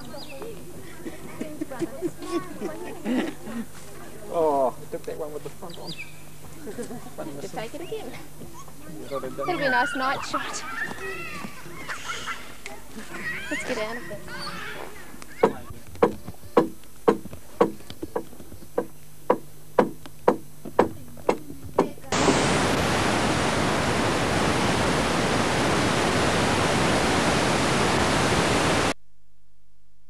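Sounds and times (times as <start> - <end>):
video static hiss: 0.0 - 29.0
tools knocking on wood: 15.4 - 22.0.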